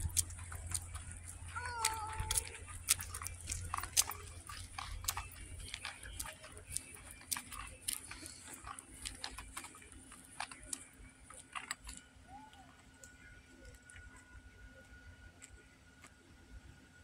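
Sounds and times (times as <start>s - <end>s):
footsteps on pavement: 0.0s - 10.8s.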